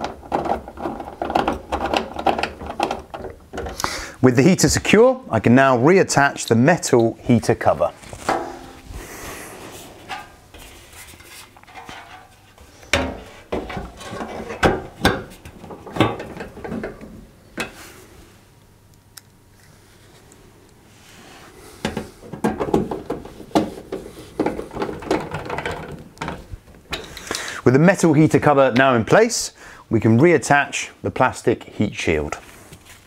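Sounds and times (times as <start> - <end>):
metal clanks and scrapes: 8.1 - 17.0.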